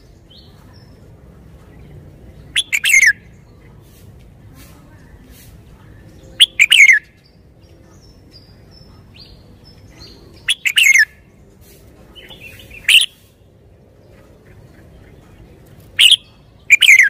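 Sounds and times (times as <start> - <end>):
bird singing warbled phrases: 0.0 - 3.7, 5.9 - 17.0.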